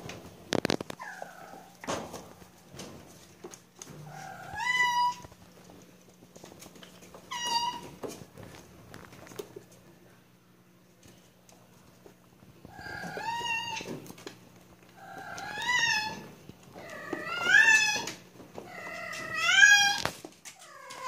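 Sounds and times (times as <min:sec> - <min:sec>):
kitten meowing: 0:15.2 - 0:16.2.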